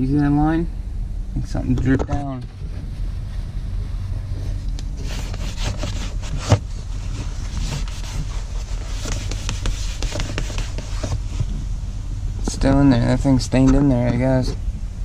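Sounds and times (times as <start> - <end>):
steady low hum: 0.0 - 15.0
rag scrubbing plastic trim: 5.0 - 11.3.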